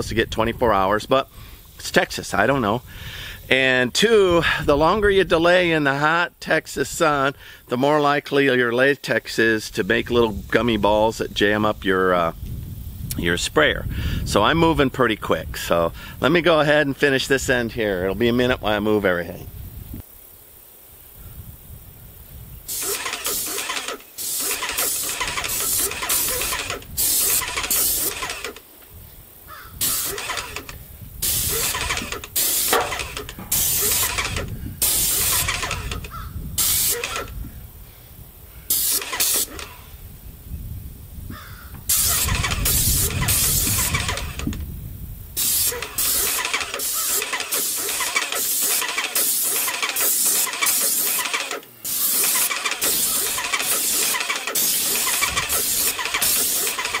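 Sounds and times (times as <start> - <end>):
paint sprayer hissing: 22.5 - 37.6, 38.5 - 40.1, 41.3 - 44.6, 45.2 - 57.0
pump motor running: 22.7 - 28.6, 29.8 - 37.4, 38.8 - 39.8, 42.0 - 44.6, 45.4 - 57.0.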